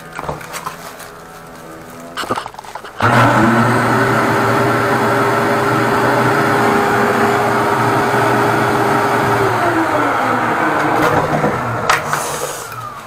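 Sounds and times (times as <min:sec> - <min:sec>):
drain cleaning machine motor humming: 0:02.9 - 0:13.0.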